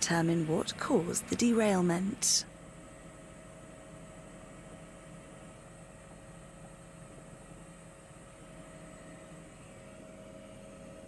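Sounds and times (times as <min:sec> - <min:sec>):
constant hum: 0:00.0 - 0:11.0.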